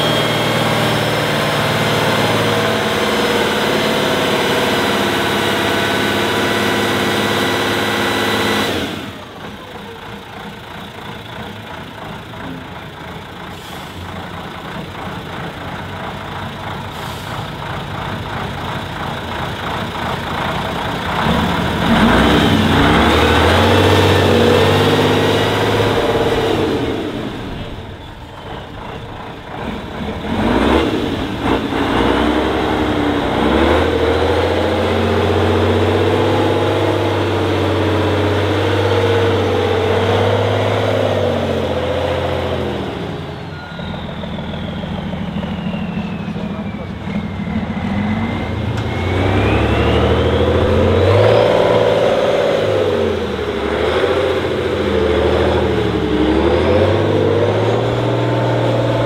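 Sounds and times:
truck engine revving: 0:00.0 - 0:59.0.

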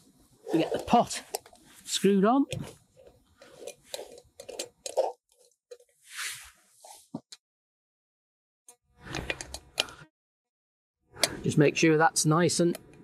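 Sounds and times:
metal threads scraping: 0:02.9 - 0:06.0.

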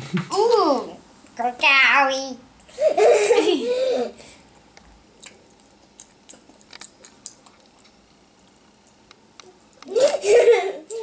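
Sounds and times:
chewing mouth clicks: 0:05.2 - 0:09.9.

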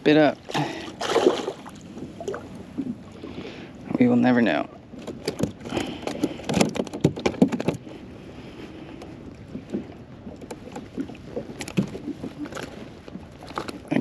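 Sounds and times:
fish flapping against plastic hull: 0:05.0 - 0:07.9.

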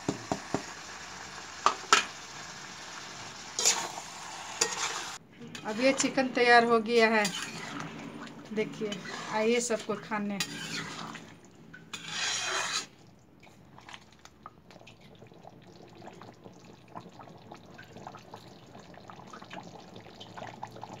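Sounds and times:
curry bubbling and popping: 0:10.6 - 0:21.0.

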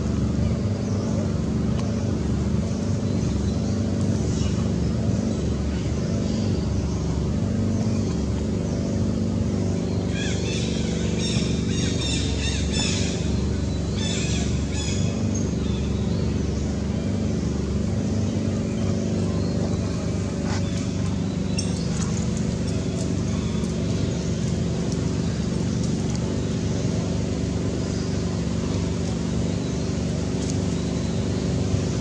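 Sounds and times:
low motor hum: 0:00.0 - 0:32.0.

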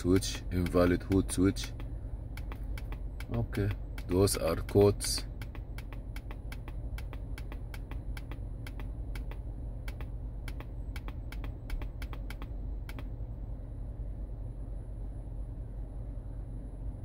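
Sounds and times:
laptop keys clicking: 0:00.6 - 0:03.4, 0:04.0 - 0:13.1.

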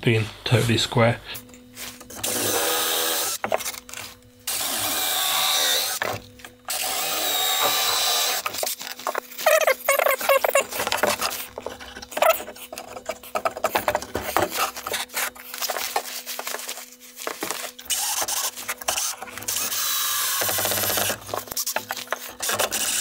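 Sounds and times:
cordless drill boring wood: 0:02.2 - 0:03.5, 0:04.5 - 0:08.8, 0:09.4 - 0:15.2, 0:17.3 - 0:23.0
wood pieces knocking and scraping: 0:07.6 - 0:17.8.

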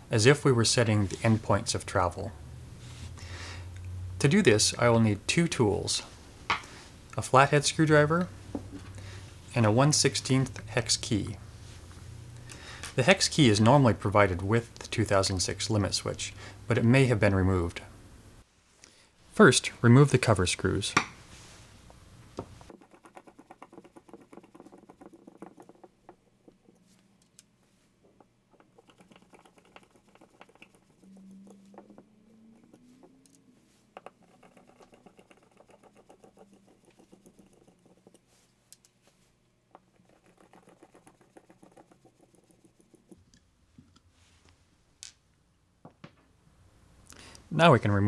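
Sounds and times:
screwdriver ticking and scraping: 0:34.0 - 0:38.9.

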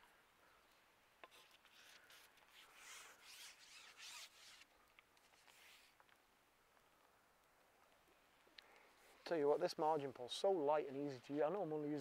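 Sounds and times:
fishing pole rubbing and scraping: 0:01.2 - 0:04.7.

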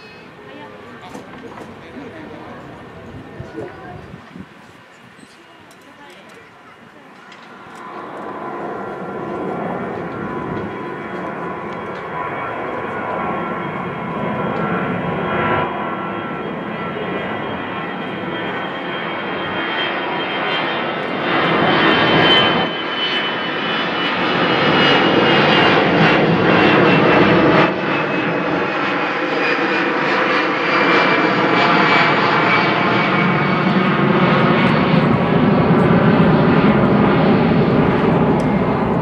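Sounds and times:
jet engines roaring with high whine: 0:00.0 - 0:39.0.

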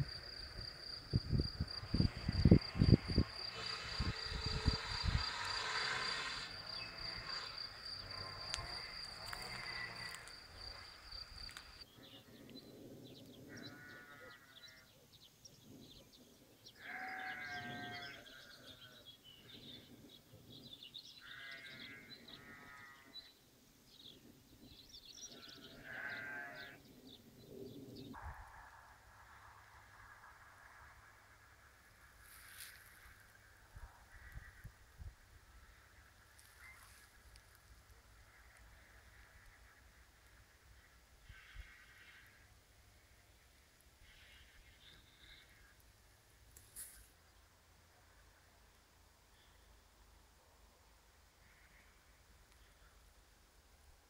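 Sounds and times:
wind buffeting microphone: 0:00.0 - 0:05.7
farm animal bleating: 0:08.2 - 0:10.3, 0:13.5 - 0:14.8, 0:16.8 - 0:19.0, 0:21.2 - 0:23.2, 0:25.4 - 0:26.8, 0:41.3 - 0:42.5, 0:44.0 - 0:45.7, 0:51.4 - 0:52.1.

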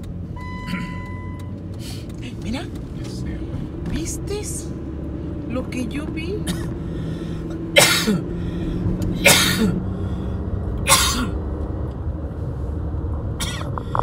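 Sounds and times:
car engine hum and road noise: 0:00.0 - 0:14.0
person sneezing: 0:07.8 - 0:08.3, 0:09.2 - 0:09.8.

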